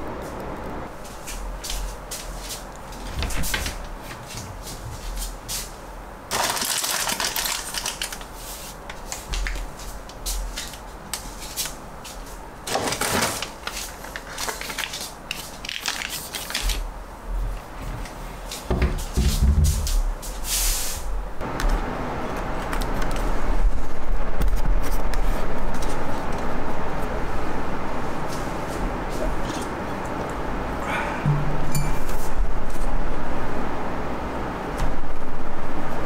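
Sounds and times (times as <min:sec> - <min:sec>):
cabinet door shutting knock: 0:18.7 - 0:19.8.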